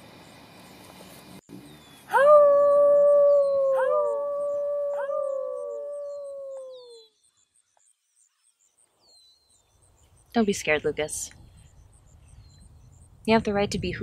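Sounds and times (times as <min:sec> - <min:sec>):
dogs howling: 0:02.1 - 0:07.0.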